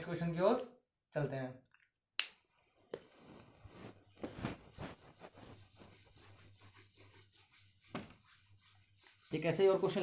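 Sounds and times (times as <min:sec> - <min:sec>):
eraser rubbing on whiteboard: 0:03.6 - 0:10.0.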